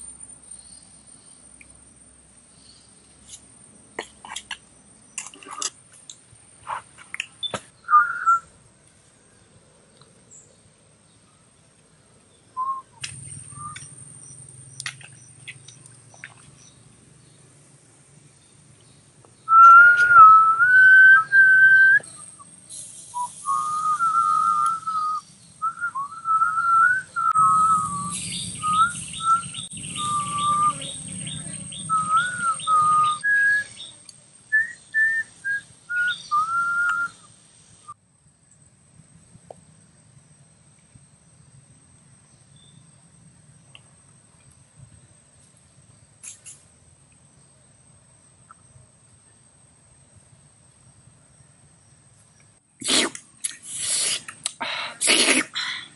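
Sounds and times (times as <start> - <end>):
man whistling a tune: 7.9 - 8.5, 12.6 - 12.9, 19.5 - 22.4, 23.2 - 31.0, 31.9 - 33.9, 34.6 - 37.2.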